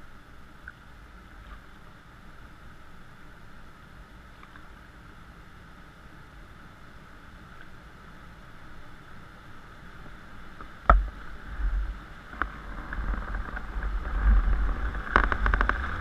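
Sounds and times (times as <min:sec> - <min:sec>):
river water washing along raft: 0:00.0 - 0:16.0.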